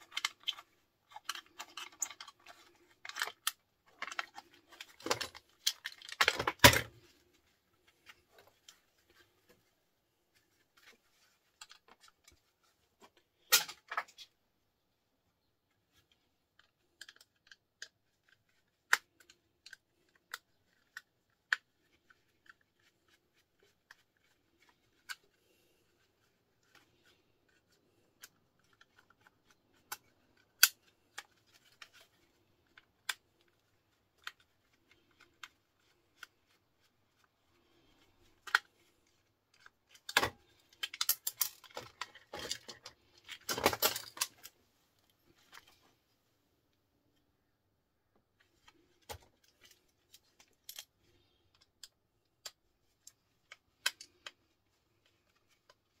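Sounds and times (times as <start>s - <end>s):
plastic casing clicking and snapping: 0.0s - 6.9s, 39.5s - 44.5s
plastic housing cracking and rattling: 0.0s - 7.1s, 39.5s - 44.5s.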